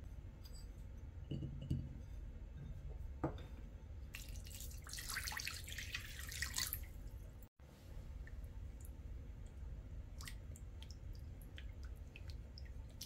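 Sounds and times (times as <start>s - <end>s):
glassware knocking: 1.3s - 2.0s, 3.2s - 3.4s.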